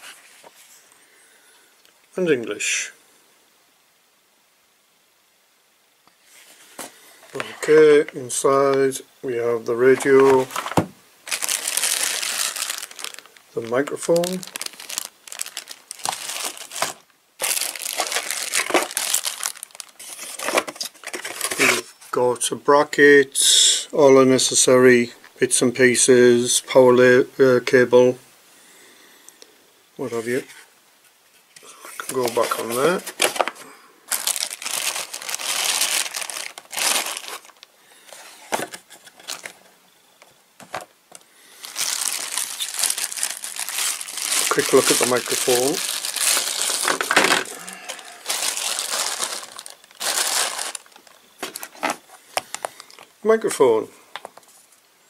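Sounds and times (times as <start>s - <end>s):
packaging crinkling and rustling: 6.3s - 9.0s, 9.8s - 22.1s, 31.3s - 53.1s.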